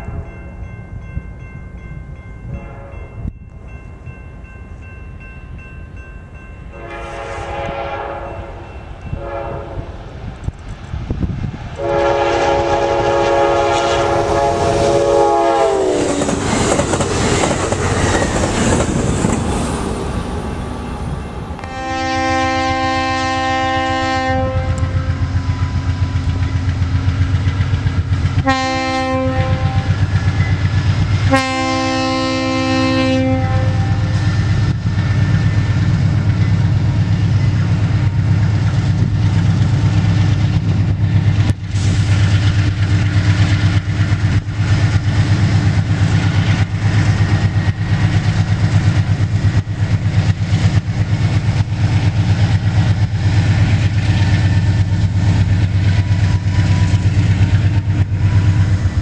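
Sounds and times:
locomotive air horn blasts: 0:02.5 - 0:03.2, 0:06.8 - 0:10.0, 0:11.8 - 0:16.1, 0:21.6 - 0:25.2, 0:28.4 - 0:30.0, 0:31.2 - 0:34.2
train wheels clicking on rails: 0:10.3 - 0:21.8, 0:24.6 - 0:31.4, 0:34.0 - 0:59.0.

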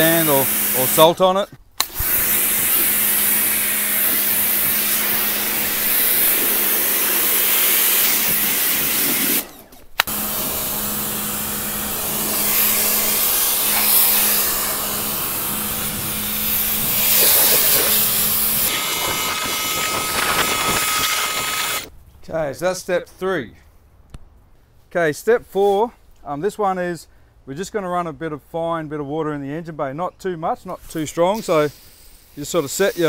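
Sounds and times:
pressure washer motor hum: 0:00.0 - 0:01.2, 0:01.8 - 0:21.9
water jet spraying hiss: 0:00.0 - 0:01.2, 0:01.8 - 0:09.4, 0:10.1 - 0:21.9, 0:31.3 - 0:33.0.

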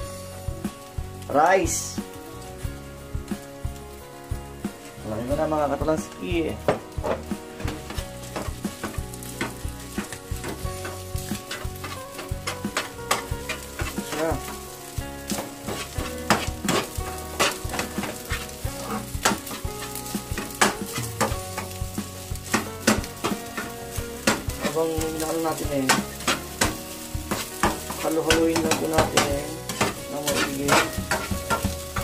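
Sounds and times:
steady sizzle of hot oil: 0:00.0 - 0:32.0
metal spatulas scraping frying pans: 0:07.0 - 0:32.0.

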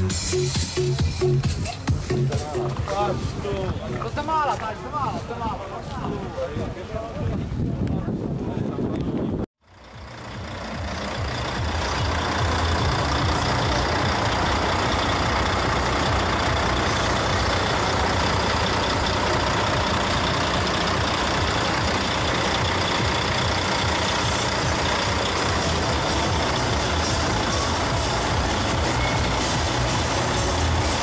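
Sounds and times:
diesel truck engine idling: 0:09.6 - 0:31.0.

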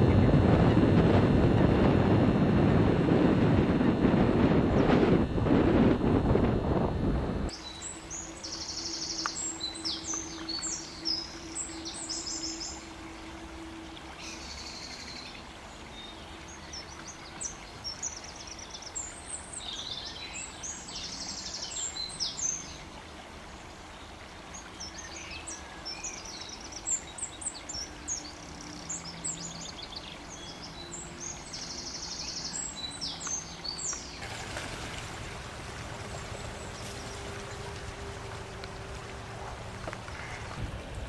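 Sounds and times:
songbird singing with trills: 0:07.5 - 0:23.0, 0:24.0 - 0:34.2
duck splashing water: 0:34.1 - 0:41.0.

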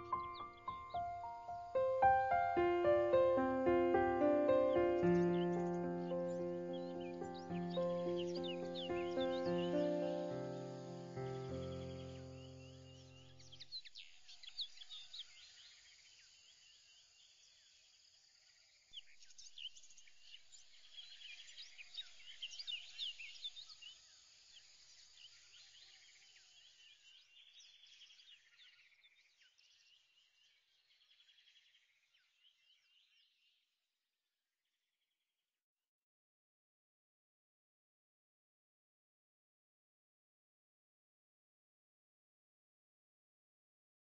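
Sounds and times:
small birds chirping: 0:00.0 - 0:17.8, 0:19.0 - 0:33.6.

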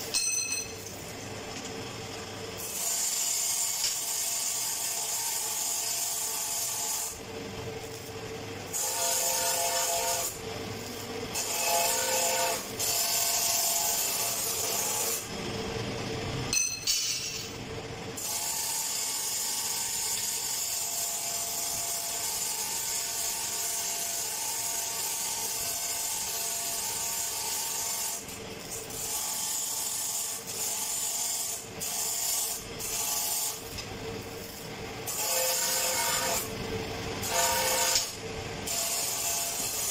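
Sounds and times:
sharp metal knock: 0:00.1 - 0:00.8
welding arc crackling hiss: 0:30.0 - 0:34.6.

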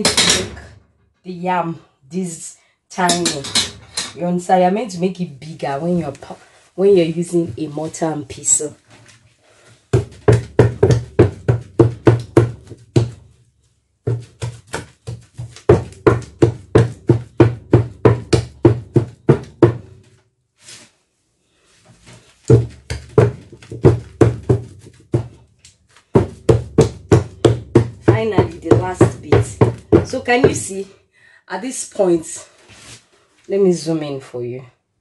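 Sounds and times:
wooden pestle thudding in mortar: 0:00.0 - 0:00.7, 0:09.9 - 0:13.4, 0:14.1 - 0:20.0, 0:22.5 - 0:30.8.

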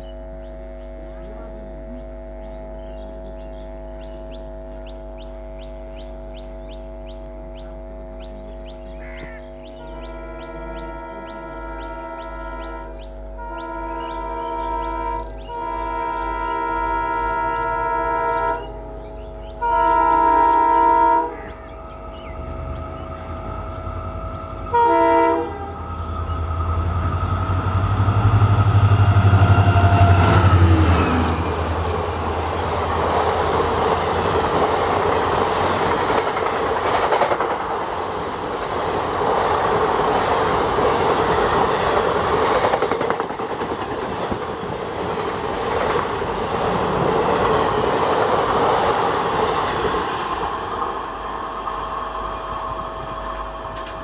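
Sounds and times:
diesel locomotive engine rumbling: 0:00.0 - 0:54.0
locomotive horn blast: 0:09.7 - 0:35.0
train wheels clattering on rail joints: 0:25.7 - 0:54.0.

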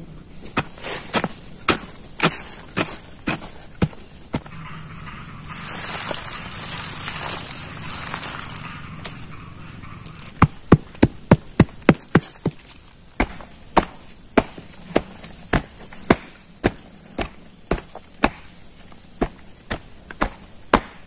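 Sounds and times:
blade chopping into wood: 0:13.2 - 0:18.6, 0:19.2 - 0:21.0.

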